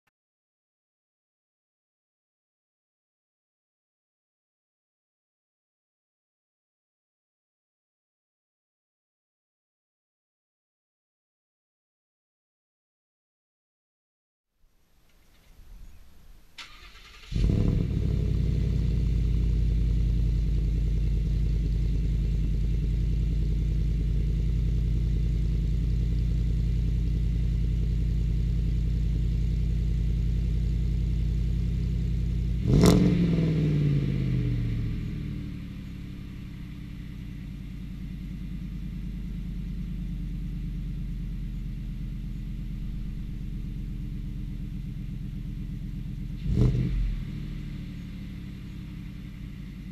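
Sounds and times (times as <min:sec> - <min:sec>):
engine starting: 0:16.6 - 0:18.3
engine revving: 0:16.6 - 0:27.1, 0:29.9 - 0:49.9
truck engine idling: 0:34.6 - 0:46.4, 0:47.3 - 0:49.9.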